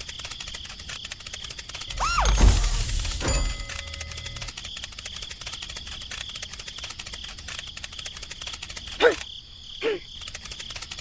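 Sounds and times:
rapid insect-like clicking: 0.0 - 1.9, 3.7 - 11.0
short falling-pitch sounds: 1.9 - 2.8.

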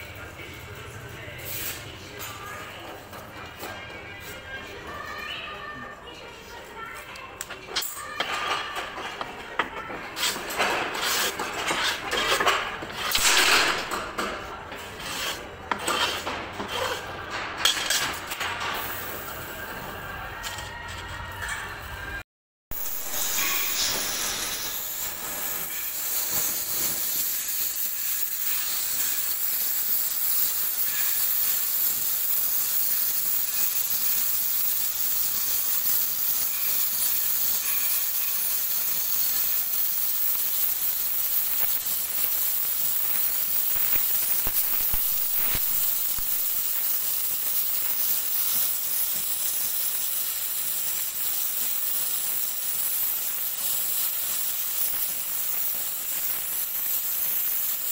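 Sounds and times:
cutting torch hissing: 22.7 - 57.9.

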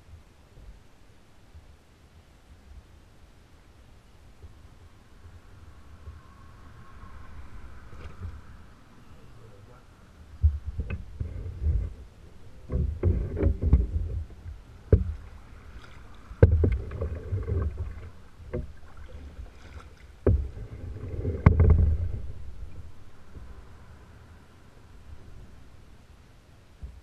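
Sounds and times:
paddle strokes splashing water: 10.5 - 23.8
sharp knocks on kayak: 12.6 - 18.8, 20.2 - 20.7, 21.3 - 22.2.

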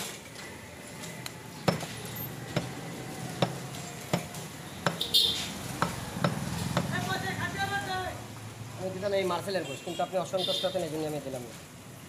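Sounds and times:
cleaver chopping meat on wood: 2.5 - 2.8, 3.4 - 5.1, 5.7 - 6.9.

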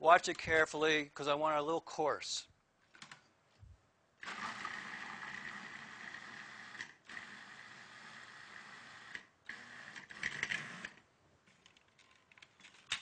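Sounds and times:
electric blender pulsing: 4.2 - 10.9.

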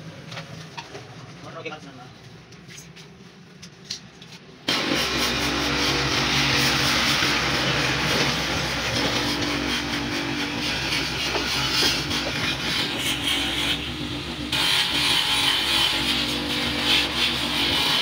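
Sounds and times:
buffing machine motor hum: 4.7 - 18.0
buffing wheel hissing on plastic: 4.7 - 18.0.

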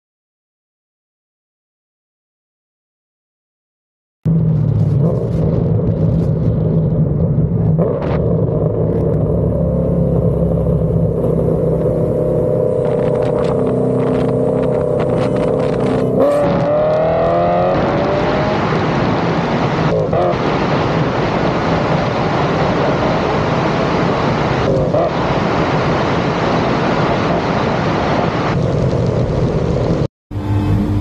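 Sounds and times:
muscle car engines accelerating: 4.3 - 28.6, 29.9 - 31.0.

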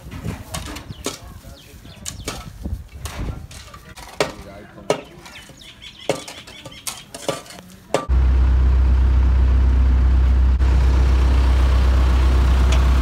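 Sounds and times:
shovels scraping dirt: 0.0 - 8.1
truck engine rumbling: 7.8 - 13.0.

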